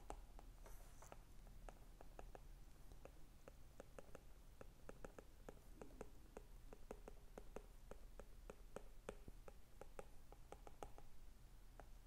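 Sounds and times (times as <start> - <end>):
stylus tapping on glass screen: 1.7 - 11.1.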